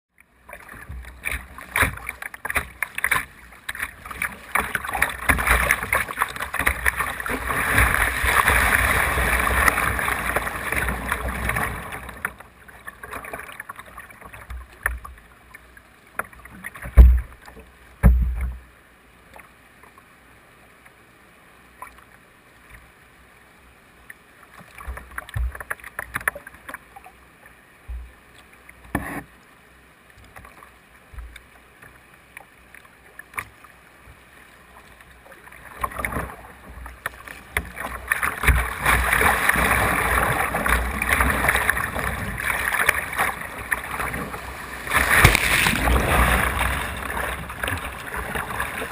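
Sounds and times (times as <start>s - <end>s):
whitewater rushing: 4.0s - 12.2s, 37.8s - 48.9s.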